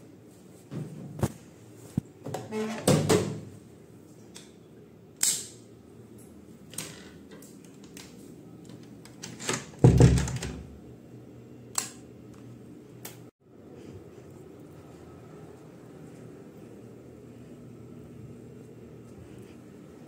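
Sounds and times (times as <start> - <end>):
faint steady hum: 10.3 - 20.0.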